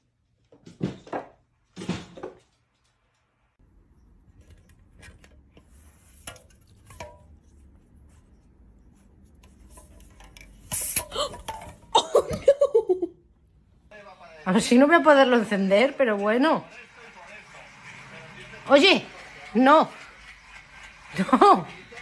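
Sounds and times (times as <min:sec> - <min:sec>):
aluminium cans clinking and rubbing: 0:03.7 - 0:12.6.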